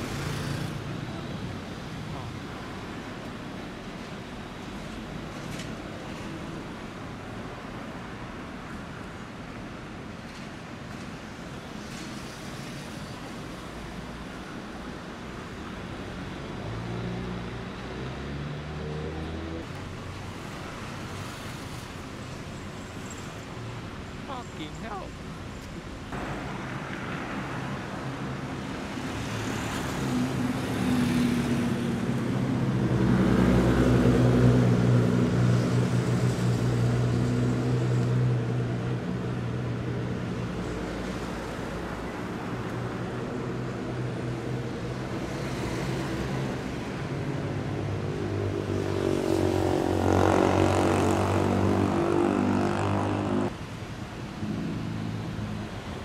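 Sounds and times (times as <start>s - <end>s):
sports car engines passing: 16.2s - 20.6s, 25.9s - 56.0s.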